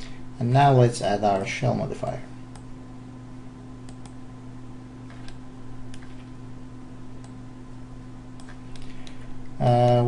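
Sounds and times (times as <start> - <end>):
low electrical hum: 0.0 - 10.0
computer mouse clicking: 3.9 - 4.2, 5.1 - 6.3.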